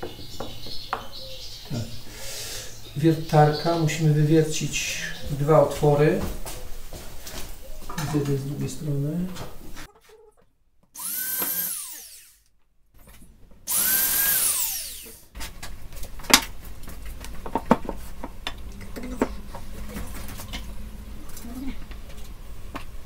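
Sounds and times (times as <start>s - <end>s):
power drill boring into wood: 11.0s - 12.4s, 13.7s - 15.3s.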